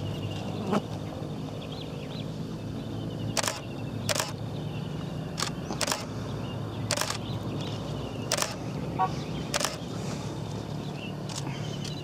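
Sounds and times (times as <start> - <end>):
camera shutter clicking: 3.4 - 4.4, 5.4 - 6.1, 6.9 - 7.2, 8.3 - 8.6, 9.5 - 9.8.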